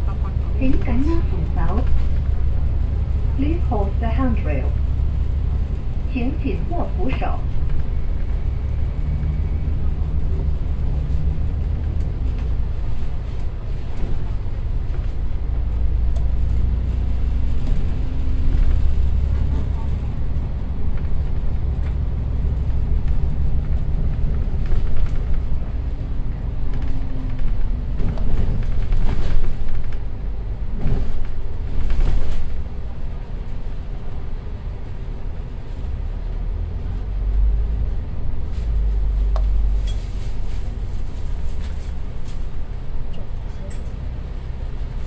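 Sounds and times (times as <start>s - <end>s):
bus engine rumbling: 0.0s - 45.0s
body rattles and knocks: 10.1s - 32.7s.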